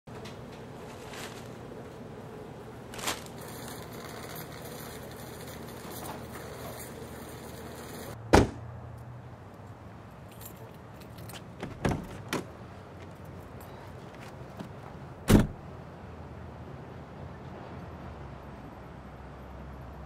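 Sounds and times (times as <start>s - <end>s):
car door thud: 8.3s - 8.6s, 11.6s - 12.5s, 15.3s - 15.6s
clicks and key jangles: 10.2s - 11.8s
car door shutting: 11.6s - 12.5s, 14.2s - 15.6s.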